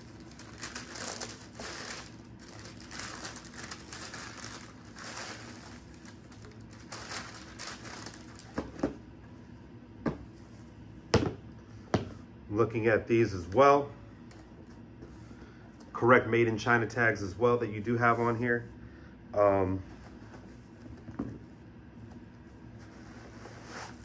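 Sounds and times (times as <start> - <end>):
tissue paper rustling and crinkling: 0.0 - 8.7, 22.8 - 24.0.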